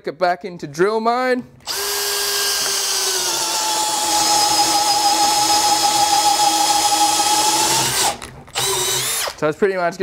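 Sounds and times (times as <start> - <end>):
drill boring into wood: 1.6 - 9.4.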